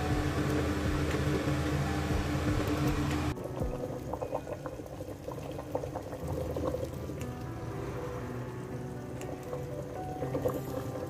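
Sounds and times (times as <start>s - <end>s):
steady hum and hiss: 0.0s - 3.4s
soup bubbling in a pot: 0.0s - 11.0s.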